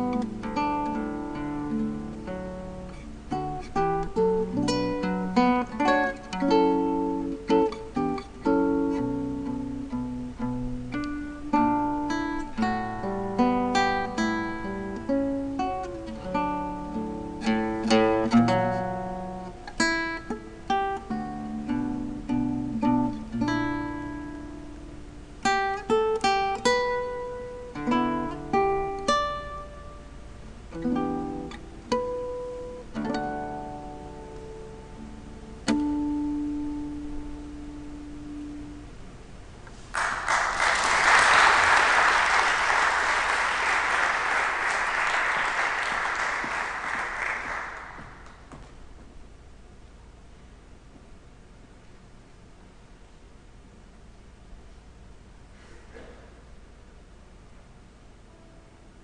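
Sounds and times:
acoustic guitar playing: 0.0 - 39.9
audience applause: 39.9 - 48.5.

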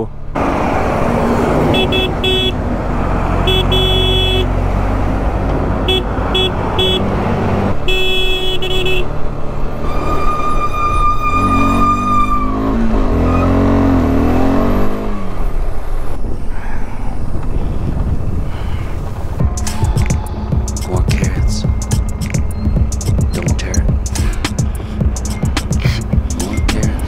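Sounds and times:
engines revving: 0.0 - 16.3, 19.1 - 27.0
vehicle horns honking: 1.7 - 2.6, 3.4 - 4.6, 5.8 - 7.2, 7.8 - 9.2.

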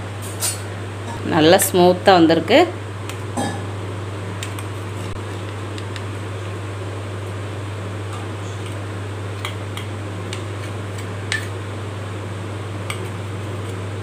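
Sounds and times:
fan hum: 0.0 - 14.0.

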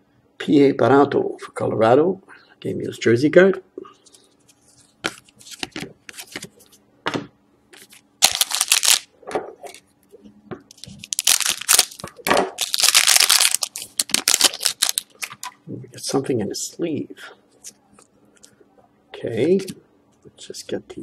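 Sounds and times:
trading cards clicking and rustling: 5.0 - 6.6, 7.8 - 9.1, 10.7 - 15.6
foil wrapper crinkling and tearing: 8.2 - 9.1, 10.7 - 15.5.

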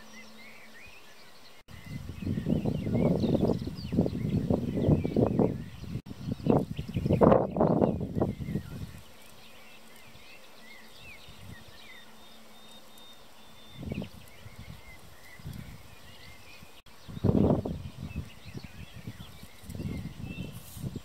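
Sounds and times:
distant birds chirping: 0.0 - 21.0
low rumble on microphone: 1.7 - 9.0, 13.6 - 21.0.

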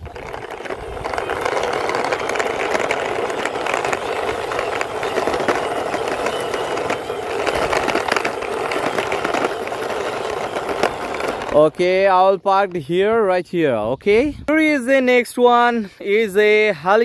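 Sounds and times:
plastic toy car wheels rolling: 0.0 - 12.3.

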